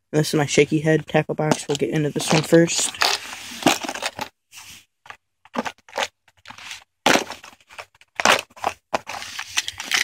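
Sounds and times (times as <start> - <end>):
plastic box scraping and clicking: 1.4 - 4.3, 5.0 - 10.0.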